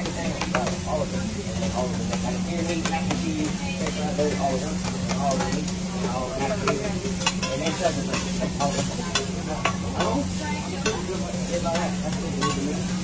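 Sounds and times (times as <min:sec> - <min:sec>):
food sizzling on a griddle: 0:00.0 - 0:13.0
metal spatula scraping steel: 0:07.1 - 0:13.0.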